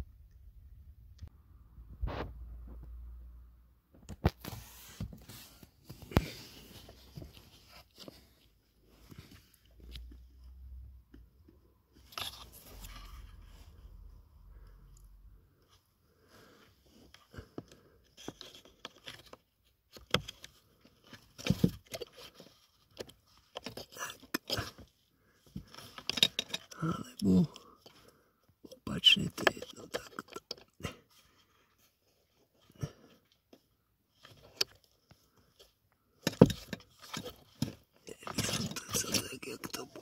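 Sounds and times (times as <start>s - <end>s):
plastic clatter: 17.3s - 26.8s, 34.2s - 40.0s
plastic clicks and scrapes: 34.2s - 40.0s.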